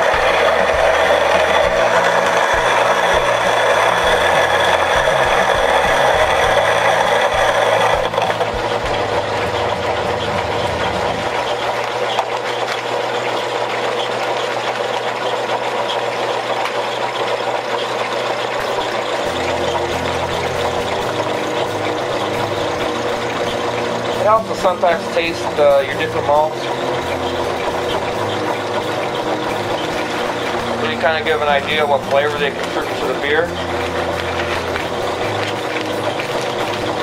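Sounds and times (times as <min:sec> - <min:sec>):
grain knocking rattle: 0:00.0 - 0:37.0
grain mill motor running: 0:00.0 - 0:37.0.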